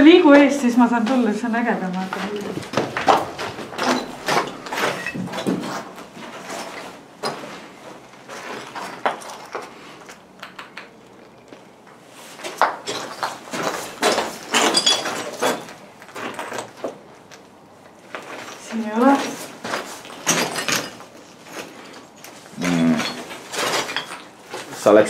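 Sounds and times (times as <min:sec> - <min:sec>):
footsteps crunching over debris: 0:01.0 - 0:09.9
knocks and clatter: 0:02.0 - 0:07.5.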